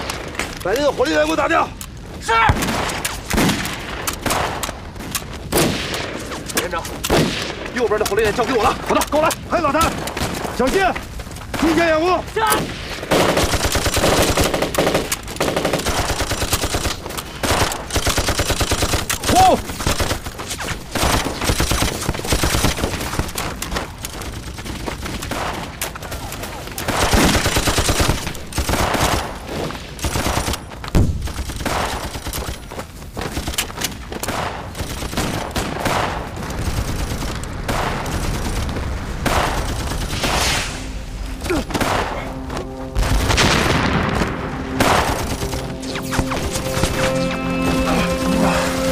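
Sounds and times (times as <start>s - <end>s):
machine-gun and rifle fire: 12.8s - 23.5s, 26.8s - 32.7s, 34.3s - 40.6s.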